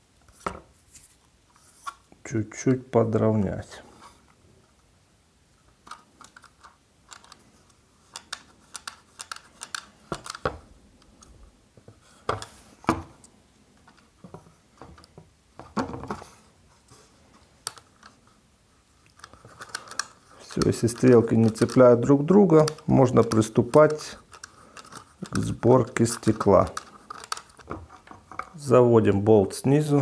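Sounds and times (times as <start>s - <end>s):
clock dial being handled: 5.8s - 10.5s, 19.1s - 28.6s.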